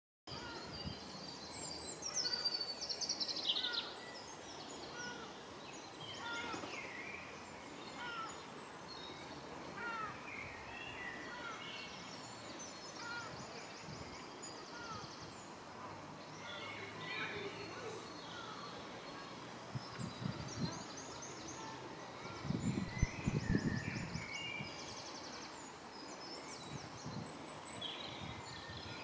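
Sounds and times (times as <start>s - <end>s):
songbirds singing and trilling: 0.3s - 29.0s
steady background hiss: 0.3s - 29.0s.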